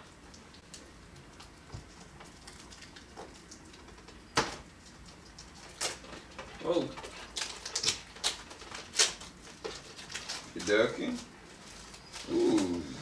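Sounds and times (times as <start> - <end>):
fingers crinkling plastic wrap: 0.7 - 13.0.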